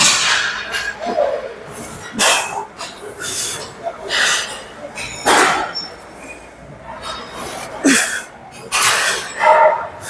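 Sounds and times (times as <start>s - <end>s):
person grunting: 7.8s - 8.3s.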